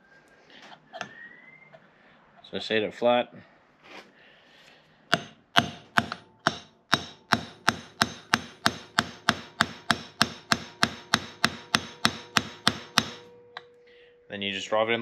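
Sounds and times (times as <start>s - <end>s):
hammer striking metal driver: 5.1s - 13.7s.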